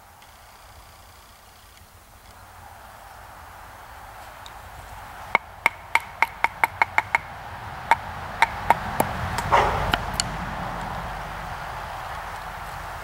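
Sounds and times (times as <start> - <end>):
wood crackle: 0.0 - 7.1.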